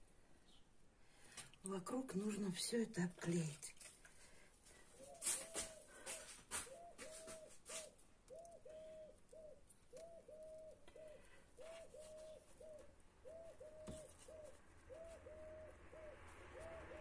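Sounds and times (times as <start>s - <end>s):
dove cooing: 4.9s - 17.0s.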